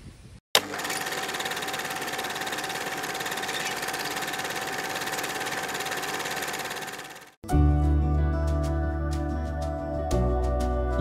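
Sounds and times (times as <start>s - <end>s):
film projector clatter: 0.6s - 7.4s.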